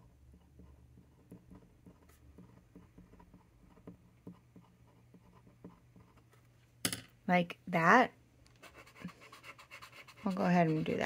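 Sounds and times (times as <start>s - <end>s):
pen scratching on paper: 0.3s - 6.3s, 8.6s - 11.0s.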